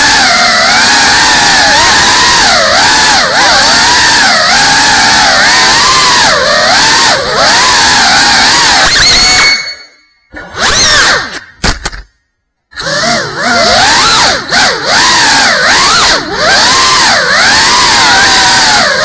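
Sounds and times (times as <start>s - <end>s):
drone motors whining: 0.0s - 12.0s, 12.7s - 19.0s.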